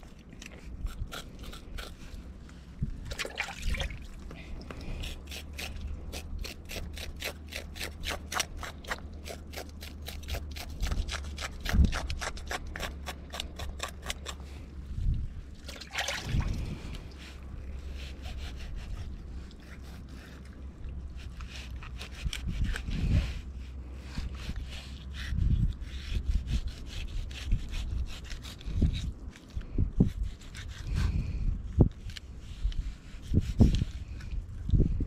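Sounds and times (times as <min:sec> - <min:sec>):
knife scraping fish scales: 0:00.6 - 0:02.2, 0:04.8 - 0:14.7, 0:16.6 - 0:31.4.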